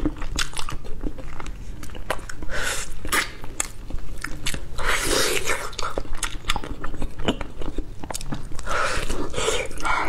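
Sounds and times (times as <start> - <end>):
wet chewing and lip smacks: 5.3 - 10.0.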